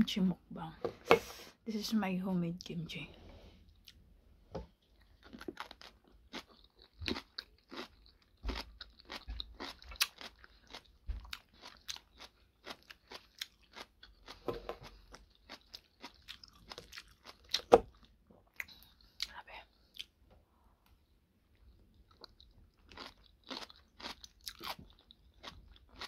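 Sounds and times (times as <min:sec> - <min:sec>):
person chewing crisp food: 0:04.7 - 0:20.2, 0:21.5 - 0:26.0.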